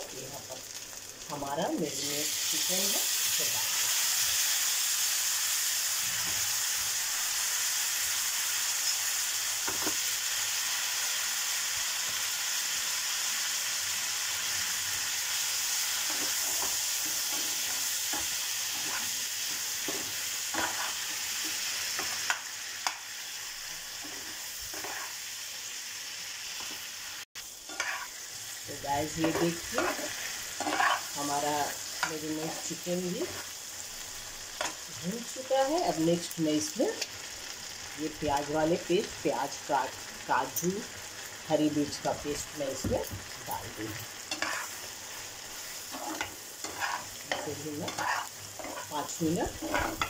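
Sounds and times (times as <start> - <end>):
chicken sizzling in a pan: 0.0 - 50.0
spoon scraping against pan: 15.7 - 25.2, 27.7 - 28.2, 29.2 - 33.5, 43.5 - 50.0.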